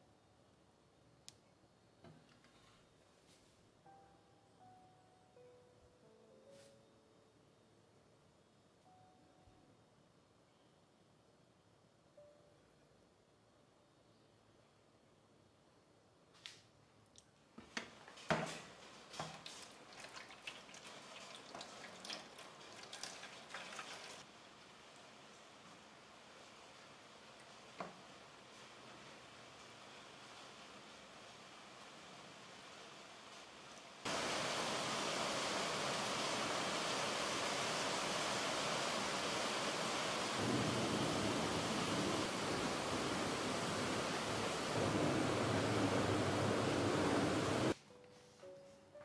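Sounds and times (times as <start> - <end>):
steady hiss: 17.9 - 49.0
liquid pouring and splashing: 19.1 - 24.3.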